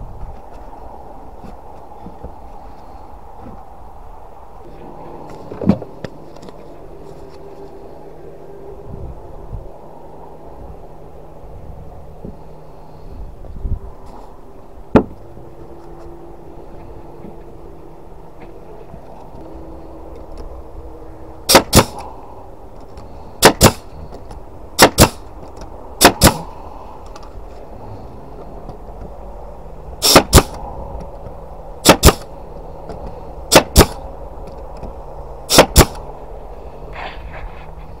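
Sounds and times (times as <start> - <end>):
nail gun firing into wood: 21.5 - 22.0, 23.4 - 23.9, 24.8 - 25.3, 26.0 - 26.5, 30.0 - 30.6, 31.8 - 32.3, 33.5 - 34.0, 35.5 - 36.0.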